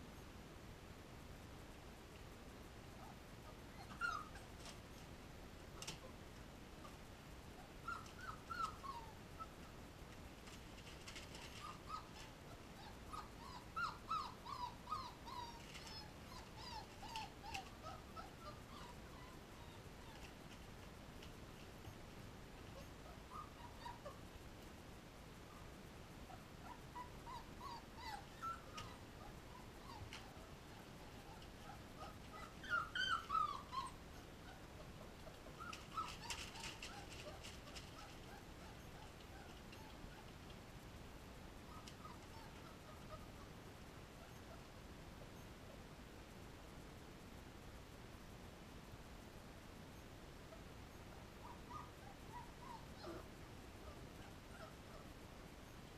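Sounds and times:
puppies whimpering: 0:03.7 - 0:04.5, 0:07.8 - 0:09.5, 0:11.1 - 0:20.3, 0:22.8 - 0:24.2, 0:26.3 - 0:40.0, 0:41.7 - 0:43.4, 0:51.4 - 0:55.0
faint scratchy clicks: 0:10.1 - 0:12.4.

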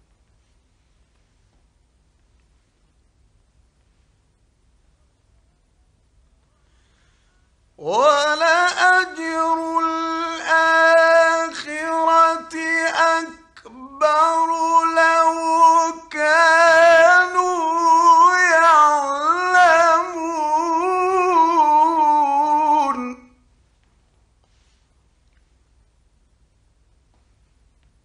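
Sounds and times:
man chanting melodically: 0:07.8 - 0:23.4.

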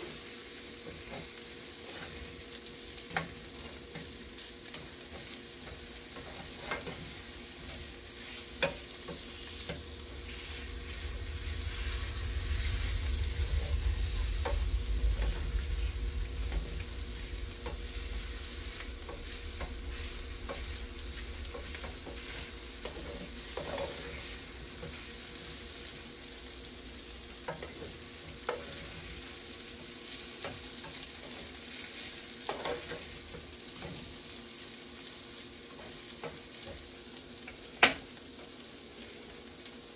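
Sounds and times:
noodles sizzling in a frying pan: 0:00.0 - 0:39.9
utensil scraping a pan: 0:06.2 - 0:25.9
low rumble: 0:07.3 - 0:29.8.

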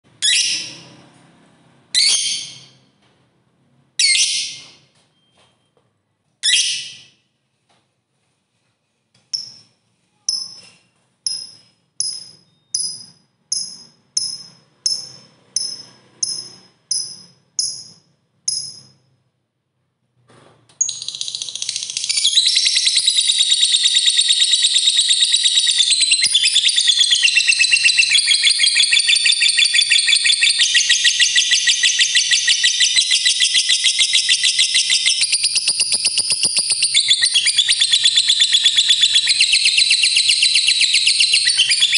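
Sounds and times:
lovebird sharp chirps: 0:00.2 - 0:00.9, 0:02.0 - 0:02.9, 0:06.4 - 0:07.2, 0:09.3 - 0:19.0, 0:20.8 - 0:41.9
lovebird rapid trill: 0:11.3 - 0:19.0, 0:20.8 - 0:41.9.

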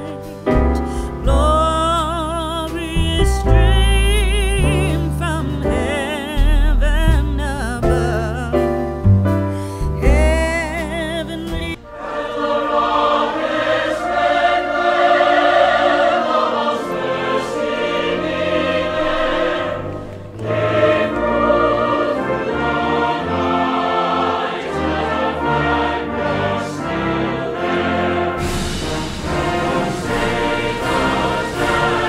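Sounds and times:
choir with orchestra: 0:00.0 - 0:06.4, 0:10.7 - 0:32.0.

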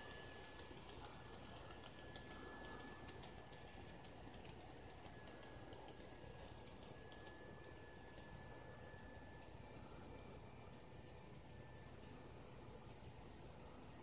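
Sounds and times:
model train wheels clicking: 0:00.0 - 0:08.3.

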